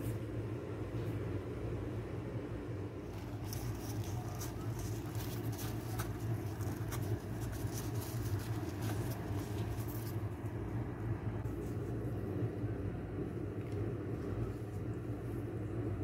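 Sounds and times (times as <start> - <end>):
low hum: 0.0 - 16.0
crisp fried bread crackling: 3.1 - 10.7.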